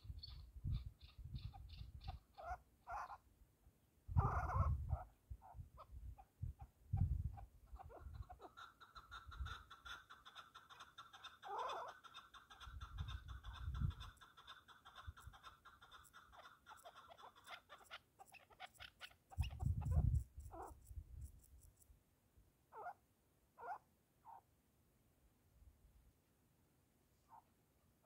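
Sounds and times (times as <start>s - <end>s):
wind rumbling on microphone: 0.0s - 2.3s, 4.1s - 8.4s, 12.6s - 14.2s, 19.3s - 21.5s.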